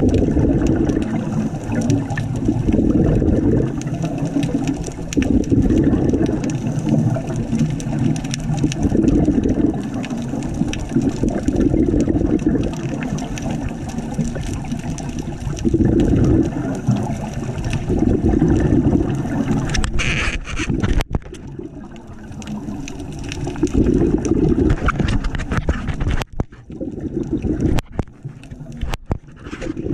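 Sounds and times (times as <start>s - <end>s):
exhaled bubbles rumbling underwater: 0.0s - 29.9s.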